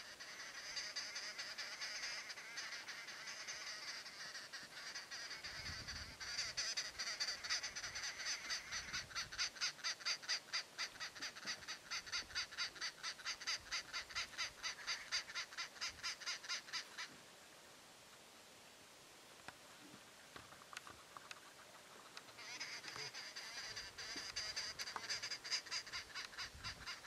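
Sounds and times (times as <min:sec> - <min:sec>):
bird calling harsh notes: 0:00.0 - 0:17.1, 0:22.3 - 0:27.0.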